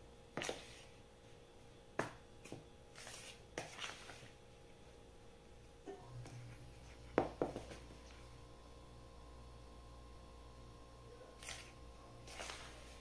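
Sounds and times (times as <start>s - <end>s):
spoon scraping plastic bowl: 3.0s - 4.4s, 11.4s - 13.0s.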